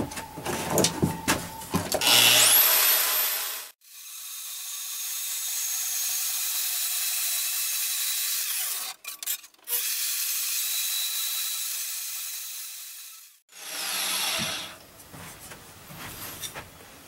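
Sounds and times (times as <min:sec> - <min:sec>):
band saw cutting metal sheet: 0:02.0 - 0:03.8.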